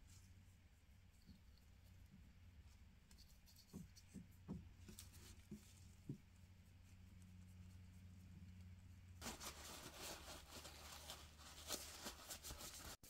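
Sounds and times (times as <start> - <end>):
faint soft taps: 3.6 - 6.3.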